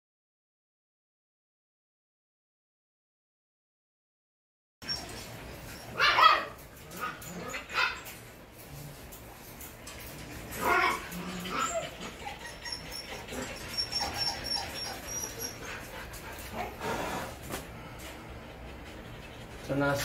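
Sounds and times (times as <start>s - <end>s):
dog whining: 4.8s - 8.1s, 10.5s - 17.4s
dog barking: 6.0s - 6.6s.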